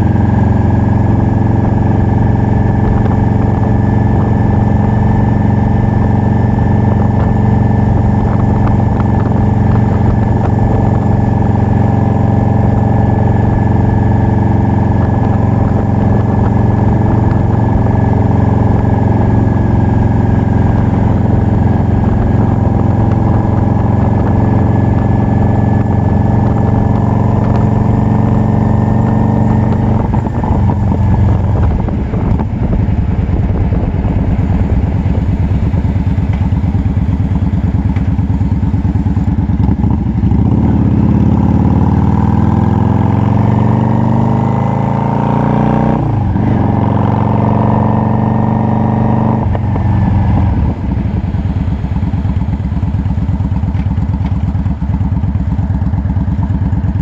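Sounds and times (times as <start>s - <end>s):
motorcycle engine running: 0.0s - 57.0s.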